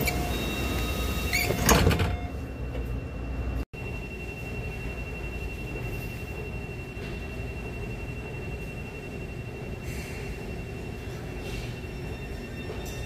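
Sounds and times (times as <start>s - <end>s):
thin high whine: 0.0s - 13.0s
train doors closing with thud: 1.3s - 2.4s
train low hum: 2.3s - 13.0s.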